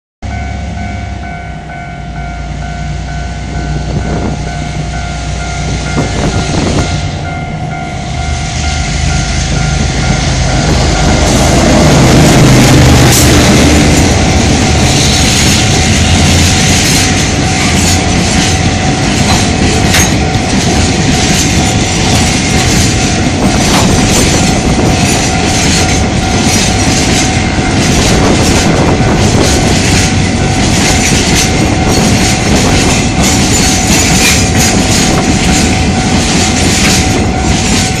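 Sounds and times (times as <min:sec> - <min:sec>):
diesel locomotive engine: 0:00.2 - 0:38.0
level crossing warning bell: 0:00.2 - 0:38.0
wagons clattering over rail joints: 0:10.7 - 0:38.0.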